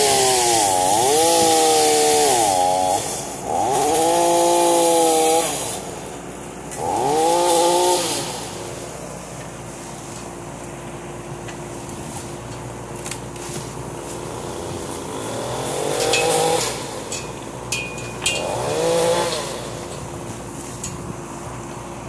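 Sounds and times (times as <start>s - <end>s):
mini excavator diesel engine: 0.0s - 22.0s.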